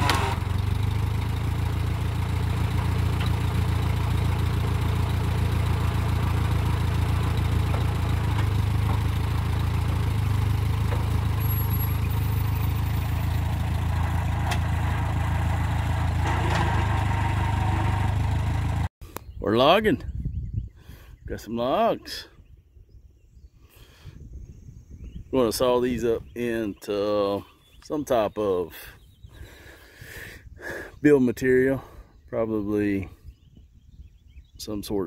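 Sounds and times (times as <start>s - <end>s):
tractor engine droning: 0.0s - 18.9s.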